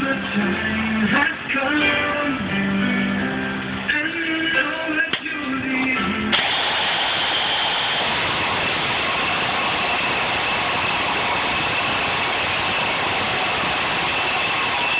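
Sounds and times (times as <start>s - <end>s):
impact wrench running: 6.3s - 14.1s.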